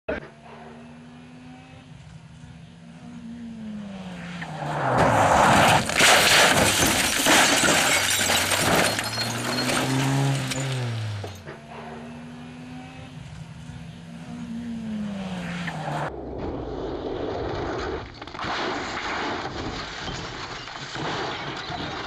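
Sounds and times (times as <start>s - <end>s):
rally car engine: 0.1s - 19.6s
rally car passing by: 0.2s - 6.5s, 9.3s - 18.0s
car crashing and rolling over: 4.5s - 12.0s, 15.6s - 22.0s.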